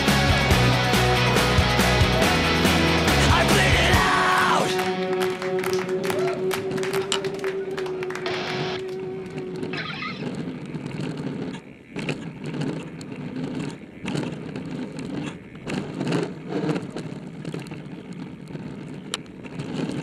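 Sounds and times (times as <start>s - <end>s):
bike tyres rumbling on gravel: 5.4s - 20.0s
bike knocks and rattles: 9.4s - 20.0s.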